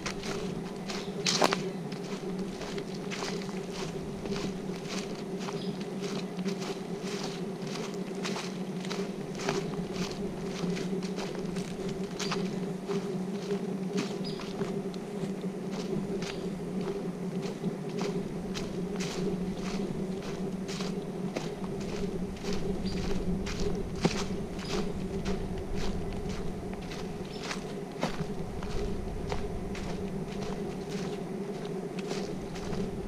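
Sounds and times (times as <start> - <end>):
footsteps crunching on trail: 0.0 - 33.0
low buzzing hum: 0.0 - 33.0.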